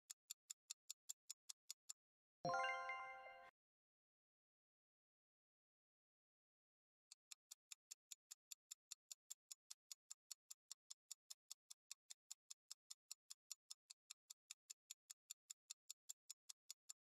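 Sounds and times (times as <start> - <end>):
faint clock-like ticking: 0.0 - 1.9, 7.1 - 17.0.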